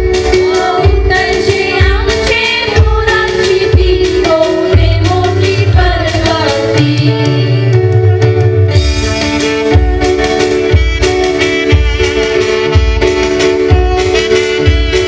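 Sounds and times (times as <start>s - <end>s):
drum beat: 0.0s - 8.1s, 8.7s - 15.0s
backing music: 0.0s - 15.0s
women's chorus singing: 0.5s - 7.1s.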